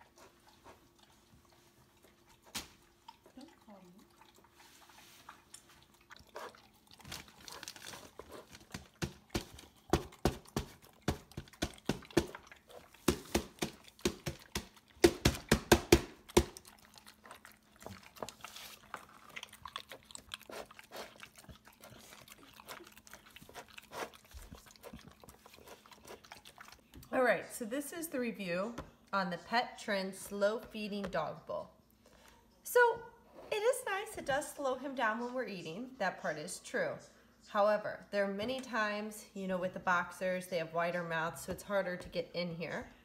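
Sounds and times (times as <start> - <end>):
dog crunching and chewing food: 0.0 - 27.1.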